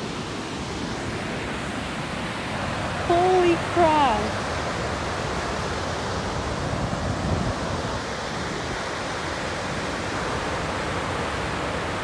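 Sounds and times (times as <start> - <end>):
river rapids rushing: 0.0 - 12.0.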